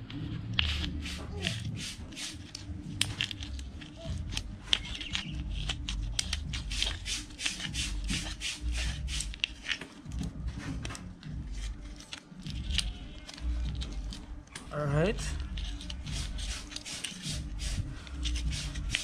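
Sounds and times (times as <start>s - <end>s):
scissors scraping plastic: 2.3s - 10.0s, 15.4s - 19.0s.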